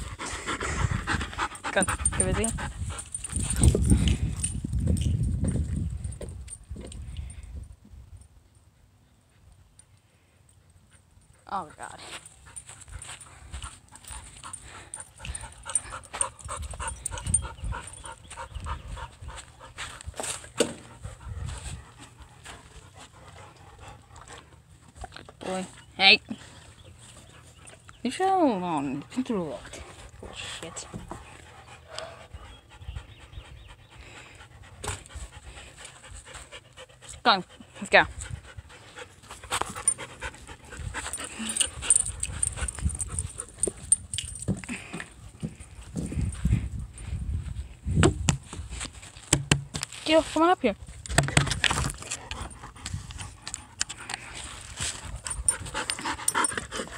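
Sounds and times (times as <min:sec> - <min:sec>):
dog panting hard: 0:00.0 - 0:04.5, 0:12.0 - 0:24.8, 0:29.6 - 0:47.0, 0:51.9 - 0:56.9.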